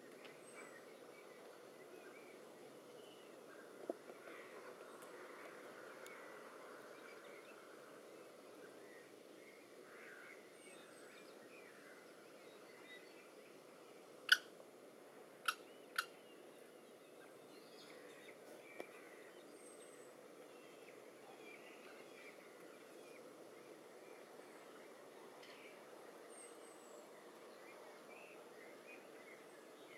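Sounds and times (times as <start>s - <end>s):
faint steady hiss: 0.0s - 29.9s.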